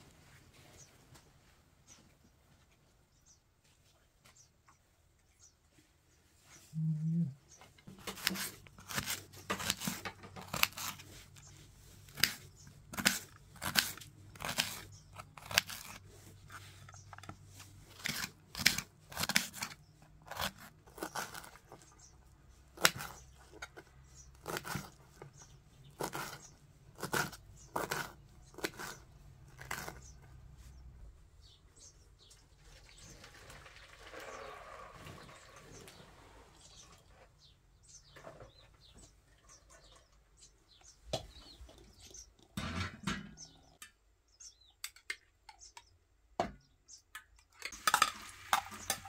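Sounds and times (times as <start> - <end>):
herbs being cut: 7.9 - 30.2.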